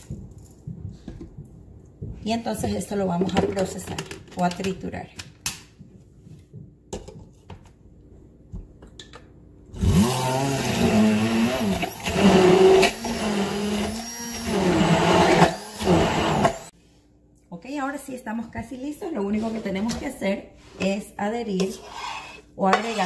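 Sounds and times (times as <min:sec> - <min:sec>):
stick blender motor: 0:09.8 - 0:16.7.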